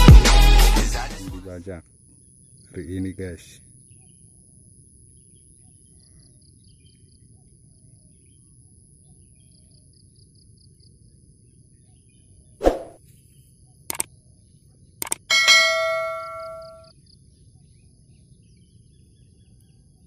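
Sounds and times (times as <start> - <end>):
cricket-like chirps: 1.5 - 20.0
high insect whine: 1.6 - 11.9
quick clicks: 15.0 - 15.3.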